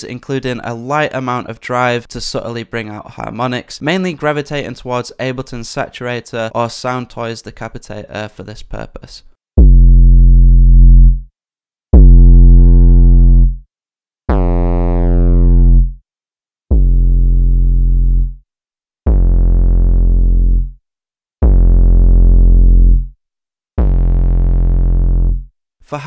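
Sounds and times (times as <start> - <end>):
deep distorted synth bass notes: 9.6 - 11.2, 12.0 - 13.6, 14.3 - 16.0, 16.7 - 18.4, 19.1 - 20.8, 21.4 - 23.2, 23.8 - 25.5.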